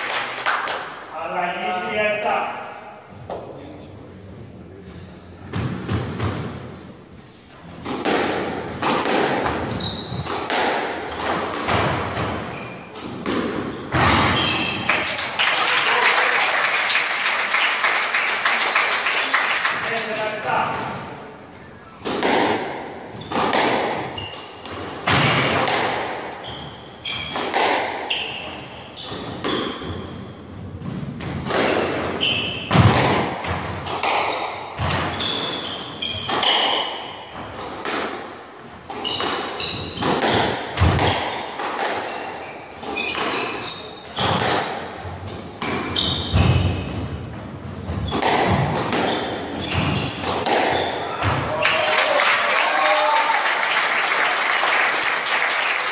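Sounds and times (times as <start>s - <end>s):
shoes squeaking on wooden floor: 9.6s - 10.4s, 11.1s - 15.0s, 23.1s - 25.7s, 26.4s - 32.9s, 34.2s - 37.5s, 38.8s - 44.5s, 45.6s - 51.4s
squash ball knocks: 30.8s - 35.1s, 38.9s - 42.1s, 47.9s - 51.5s.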